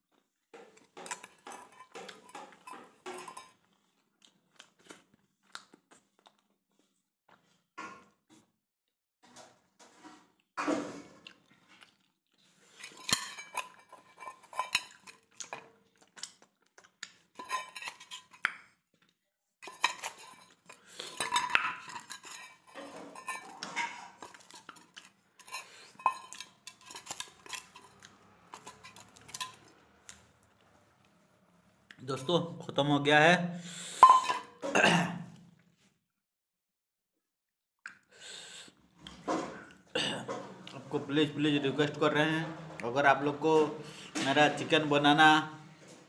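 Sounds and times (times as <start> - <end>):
fingers scraping steel bowl: 19.6 - 29.6.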